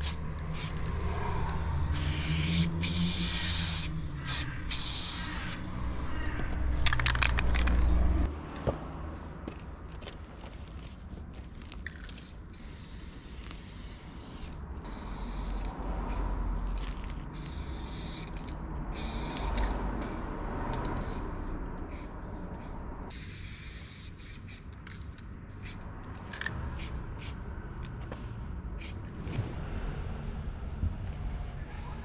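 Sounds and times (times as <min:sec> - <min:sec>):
spray-paint can hissing: 0:00.0 - 0:08.3, 0:09.1 - 0:27.4, 0:28.8 - 0:29.1
low rumble: 0:29.0 - 0:32.0.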